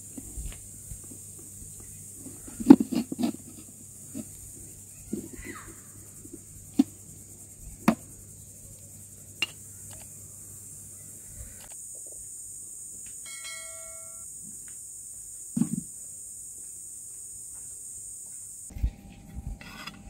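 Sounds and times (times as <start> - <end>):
steady high hiss: 0.0 - 20.0.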